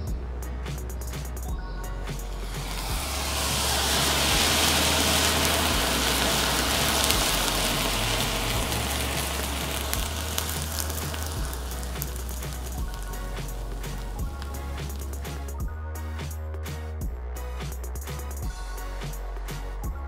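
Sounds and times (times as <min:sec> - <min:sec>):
gunpowder burning with hiss: 0:02.2 - 0:15.6.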